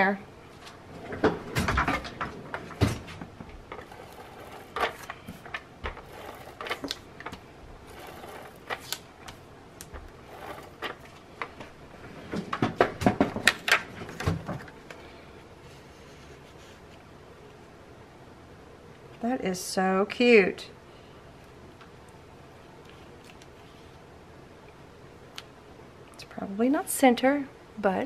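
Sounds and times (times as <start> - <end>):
paper scraping and rustling: 3.7 - 9.4, 10.0 - 11.2.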